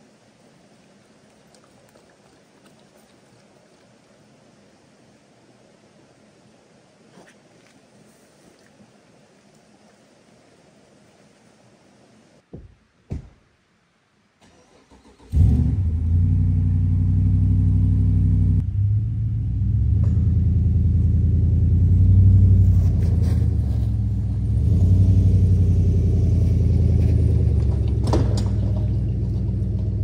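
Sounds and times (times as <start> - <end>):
car engine starting and revving: 14.4 - 30.0.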